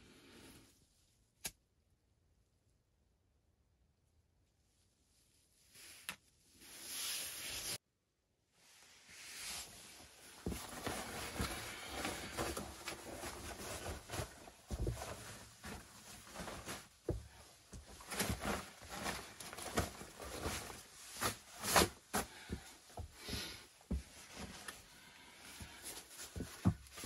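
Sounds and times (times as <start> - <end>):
fabric rustling and crinkling: 8.8 - 27.0.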